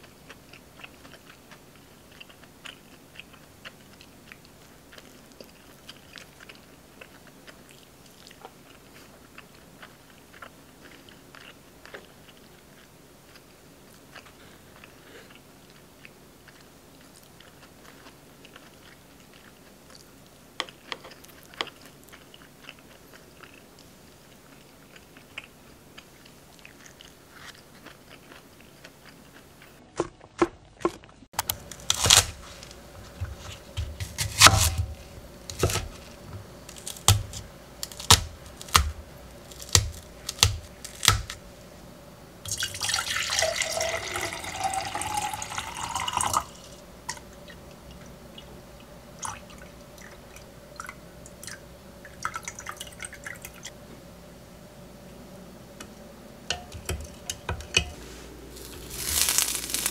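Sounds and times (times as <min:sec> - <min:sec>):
water pouring into glass jug: 0:42.5 - 0:46.7
kitchenware clinking: 0:56.5 - 0:58.0.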